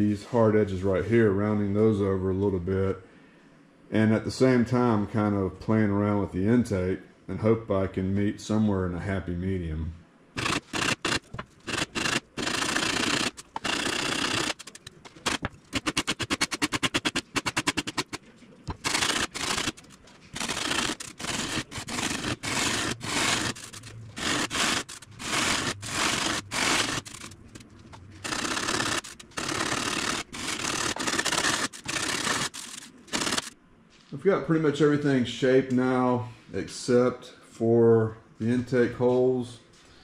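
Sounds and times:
sandpaper rasping on foam: 10.4s - 27.6s, 28.2s - 33.6s.

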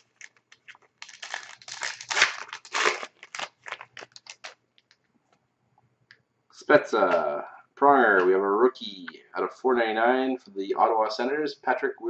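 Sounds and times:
wrapper tearing and crinkling: 0.0s - 5.0s.

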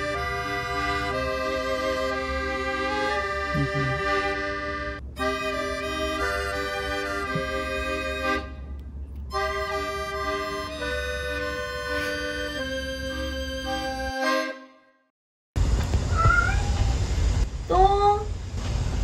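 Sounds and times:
background music with held notes: 0.0s - 15.0s.

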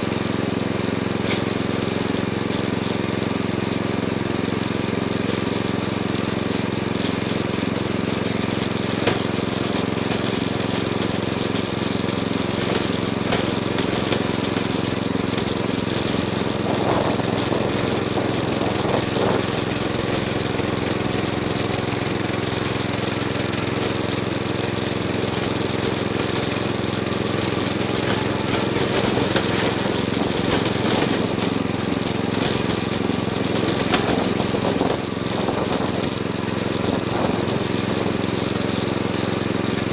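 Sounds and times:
riding mower engine running: 0.0s - 39.9s.

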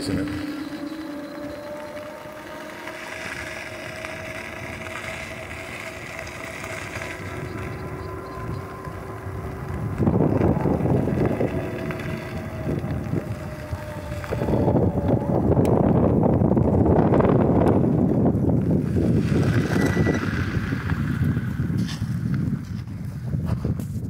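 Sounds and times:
electric bike motor whining: 0.0s - 24.0s
wind buffeting microphone: 0.0s - 24.0s.

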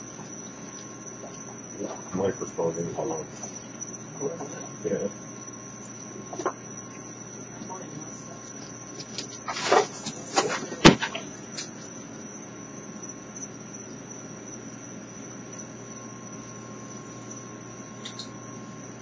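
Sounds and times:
crickets trilling: 0.0s - 19.0s
animals scuffling in cardboard: 9.0s - 11.3s.

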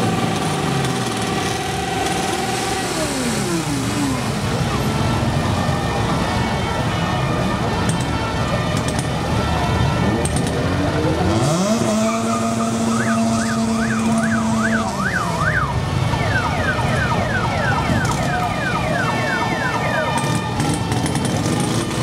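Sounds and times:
engines rumbling: 0.0s - 22.0s
fire engine sirens: 0.0s - 22.0s
horn-like tone: 11.3s - 15.4s.

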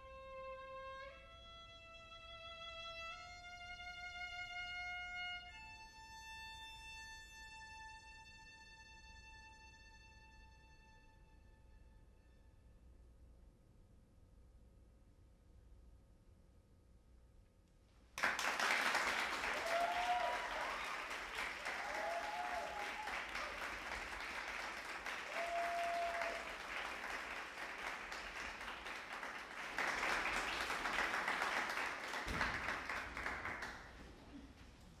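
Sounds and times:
audience applause: 18.2s - 34.1s.

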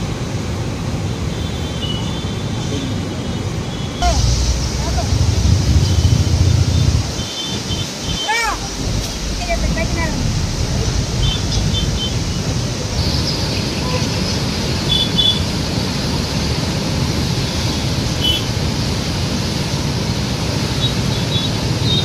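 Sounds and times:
water rushing over a weir: 4.0s - 22.0s.

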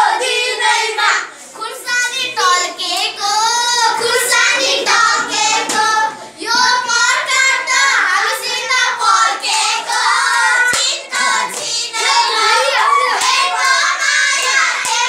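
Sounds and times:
children singing a folk song: 0.0s - 15.0s
hand clapping: 9.9s - 12.2s, 13.2s - 15.0s.

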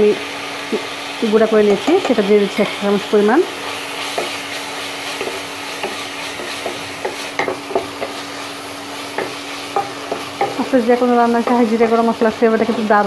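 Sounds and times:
meat sizzling in a pan: 0.0s - 13.0s
wooden spatula scraping a pan: 3.5s - 13.0s.

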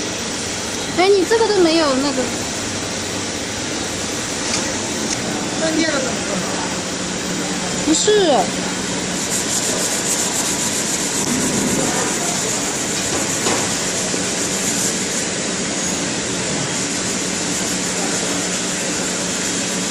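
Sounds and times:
knife sharpening machine humming: 0.0s - 19.9s
abrasive grinding rub: 9.2s - 15.2s.

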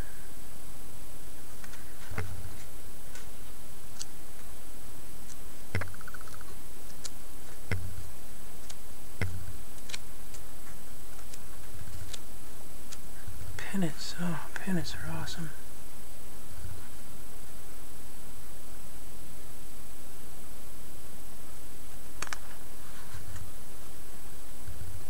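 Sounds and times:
background hiss: 0.0s - 25.0s
glossy pages flipping: 8.6s - 12.3s.

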